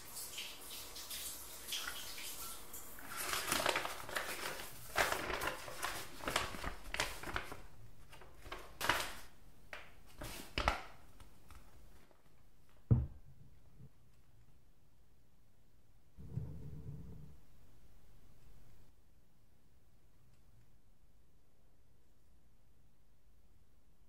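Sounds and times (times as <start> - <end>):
paper wrapping crinkling: 3.0 - 12.2
dull thump: 12.9 - 13.2.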